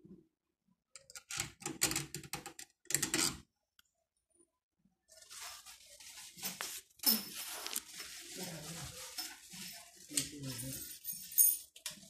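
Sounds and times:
rubbing and rustling: 5.1 - 11.7.

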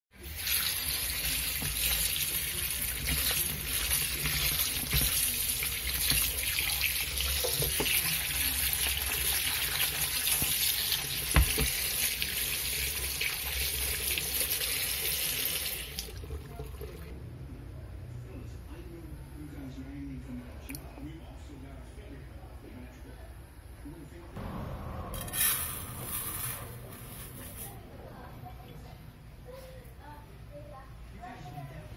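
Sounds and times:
tap water splashing through colander: 0.3 - 12.5.

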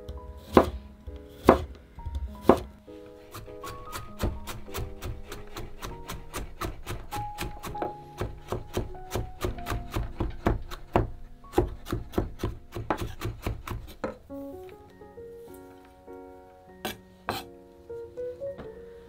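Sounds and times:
soft background music: 0.0 - 19.0
knife chopping on wooden board: 0.5 - 0.8, 1.4 - 1.7, 2.4 - 2.7, 3.3 - 14.2, 16.8 - 17.5.

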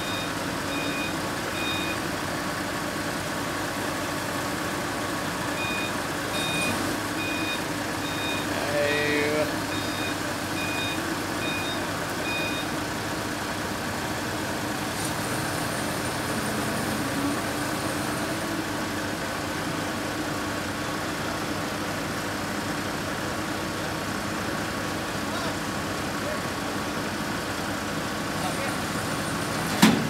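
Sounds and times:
reversing alarm beeping: 0.0 - 2.0, 5.6 - 12.7
forklift engine running: 0.0 - 30.0.

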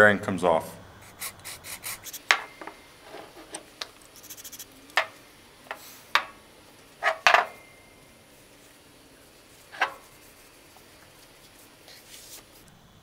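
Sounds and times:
objects knocking on wooden workbench: 5.0 - 6.4, 7.0 - 7.6.

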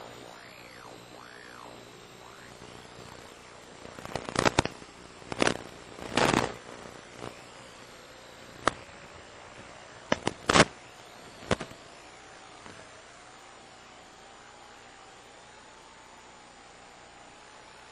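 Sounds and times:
static crackles and pops: 0.0 - 12.0
radio static hiss: 0.0 - 12.1.

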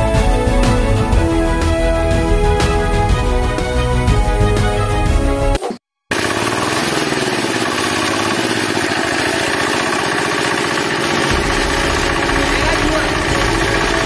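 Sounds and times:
small engine running: 5.6 - 14.0.

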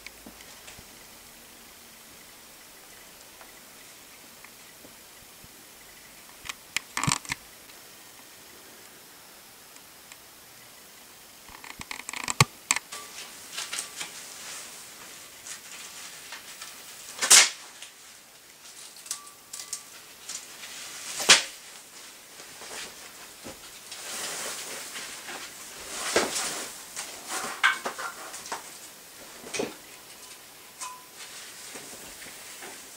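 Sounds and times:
clicks and rustling: 6.3 - 7.8, 11.5 - 32.9.

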